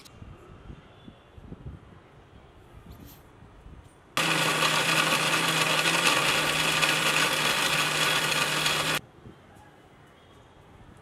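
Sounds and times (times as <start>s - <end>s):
mixer grinder motor whirring: 4.2s - 9.0s.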